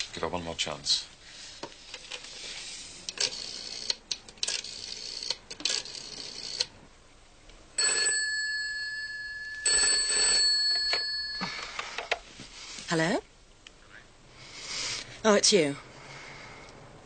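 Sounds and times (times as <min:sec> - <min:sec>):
telephone bell ringing: 0:07.8 - 0:12.2.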